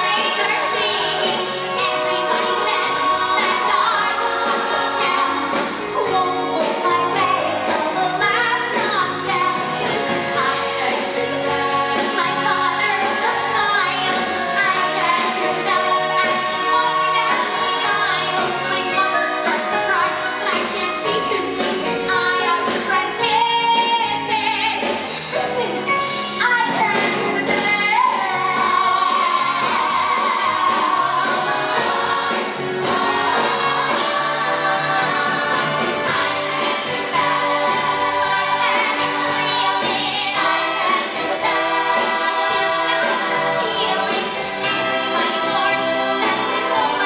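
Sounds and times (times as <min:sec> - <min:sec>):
orchestra playing: 0:27.0 - 0:47.0
ensemble singing: 0:28.0 - 0:47.0.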